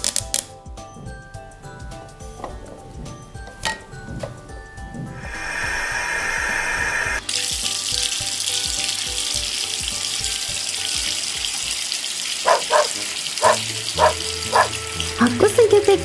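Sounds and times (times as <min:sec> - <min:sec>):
water splashing into plastic pond: 0:07.2 - 0:16.0
dog barks: 0:12.4 - 0:14.8.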